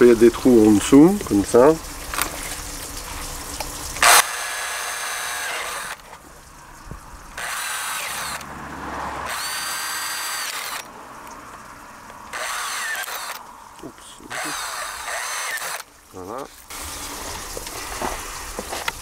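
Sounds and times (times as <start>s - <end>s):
cordless drill boring plastic pipe: 4.0s - 6.2s, 7.4s - 8.5s, 9.2s - 10.9s, 12.3s - 13.4s, 14.2s - 15.9s.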